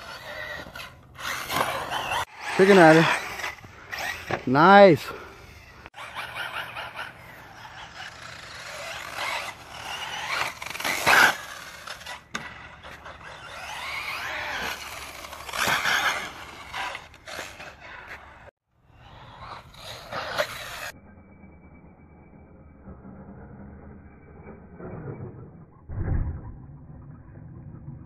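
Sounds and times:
radio-controlled car motor: 0:00.0 - 0:20.9.

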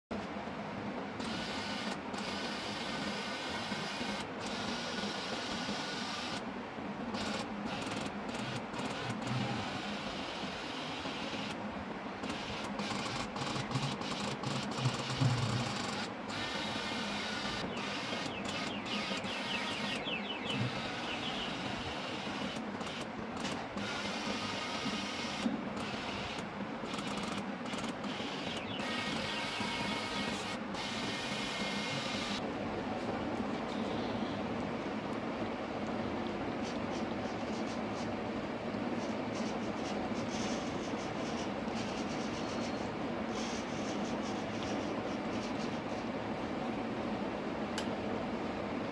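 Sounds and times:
small electric motors whirring: 0:07.1 - 0:11.6, 0:12.2 - 0:32.4.

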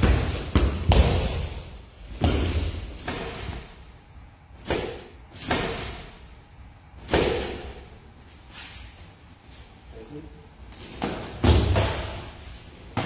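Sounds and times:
karate strikes thudding: 0:00.0 - 0:03.5, 0:07.0 - 0:07.8.

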